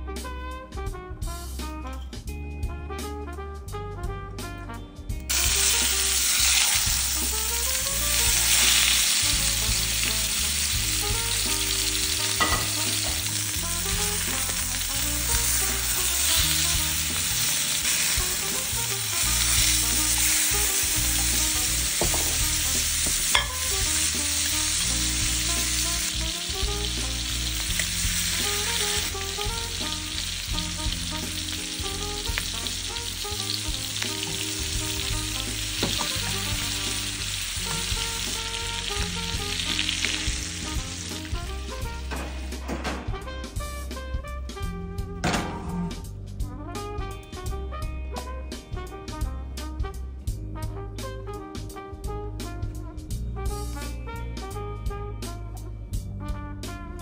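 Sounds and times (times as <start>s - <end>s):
steaks sizzling in a skillet: 5.3s - 42.5s
metal tongs clinking pan: 12.3s - 13.3s, 23.1s - 23.7s.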